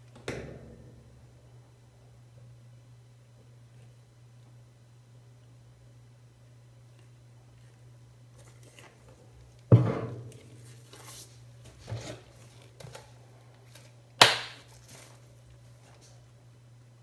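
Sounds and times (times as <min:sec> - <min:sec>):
steady low hum: 0:00.0 - 0:17.0
bottles knocking down on counter: 0:09.7 - 0:10.2.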